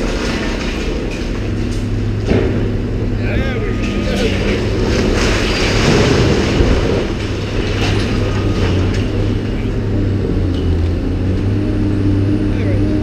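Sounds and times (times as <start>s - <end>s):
debris knocks: 0.0s - 9.9s
brick wall collapsing: 0.0s - 10.8s
excavator diesel engine running: 0.0s - 13.0s.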